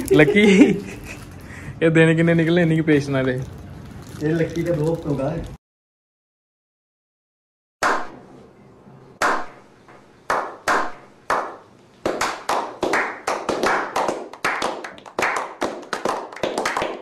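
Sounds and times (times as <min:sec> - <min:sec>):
people clapping: 0:10.3 - 0:17.0
single hand claps: 0:10.3 - 0:17.0.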